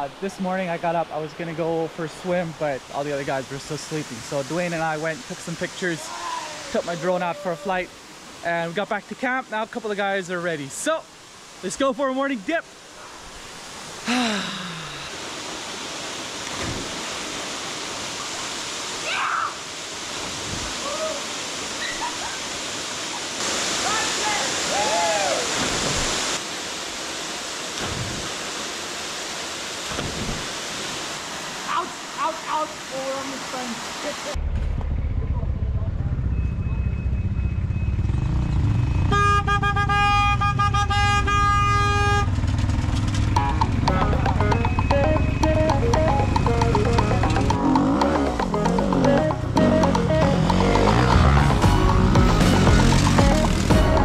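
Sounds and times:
waterfall pouring into pool: 13.6s - 34.4s
vehicle horn honks: 39.0s - 42.4s.

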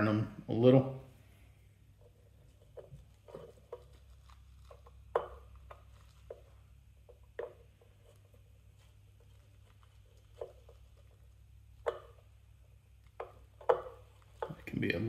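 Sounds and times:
faint low hum: 0.0s - 15.0s.

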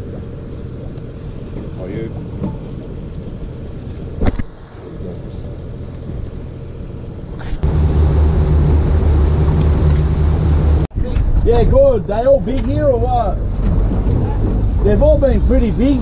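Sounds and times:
boat engine running: 0.0s - 4.2s, 4.8s - 10.9s, 12.1s - 16.0s
loud low rumble: 7.6s - 12.1s.

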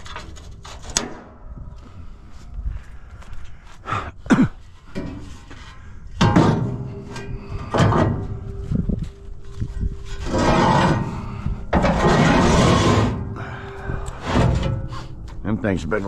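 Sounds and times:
metal ramp clanking and scraping: 0.0s - 1.5s, 4.8s - 16.0s.

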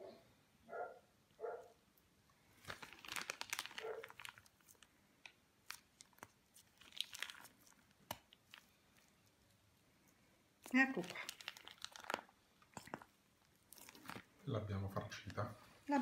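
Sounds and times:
plastic piping bag crinkling: 2.4s - 9.7s, 10.6s - 16.0s.

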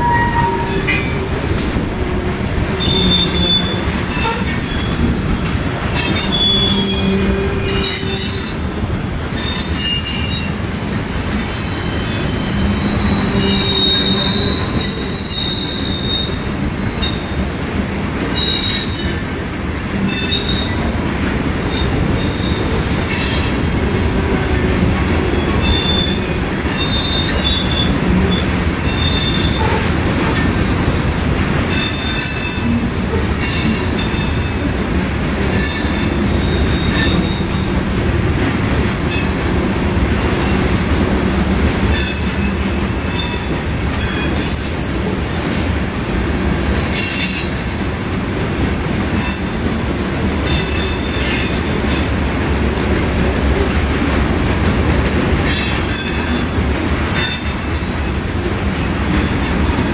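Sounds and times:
high-pitched wheel squeals: 0.0s - 1.2s, 2.8s - 10.8s, 11.5s - 16.4s, 18.4s - 20.8s, 35.6s - 37.7s, 41.9s - 45.7s
train wheels rumbling on rails: 0.0s - 59.9s.

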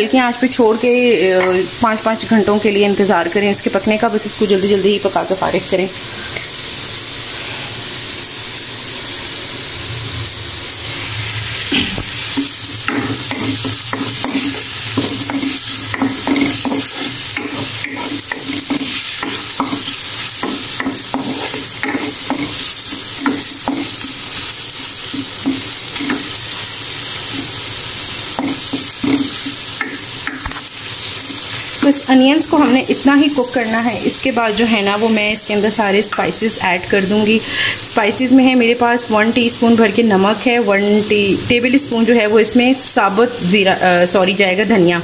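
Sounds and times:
onions sizzling in oil: 0.0s - 45.0s
wooden spoon scraping a pan: 10.9s - 24.3s.

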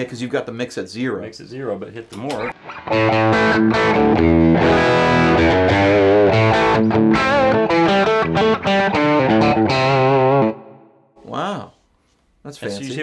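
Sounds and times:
overdriven electric guitar: 2.4s - 11.0s.

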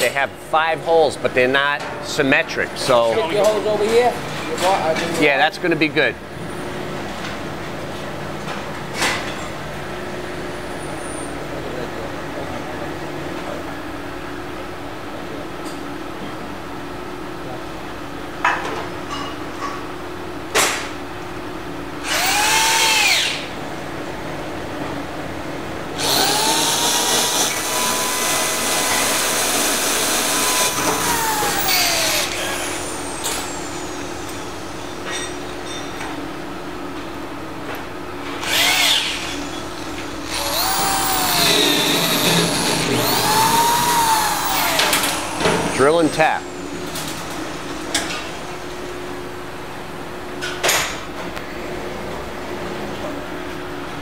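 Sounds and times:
electric drill drilling metal: 22.0s - 23.5s, 26.0s - 33.4s, 38.4s - 45.9s.

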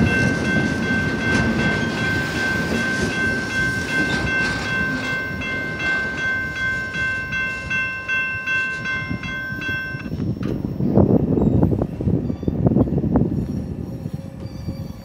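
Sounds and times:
crossing warning bell ringing: 0.0s - 11.8s
freight train rumbling on rails: 0.0s - 15.0s.

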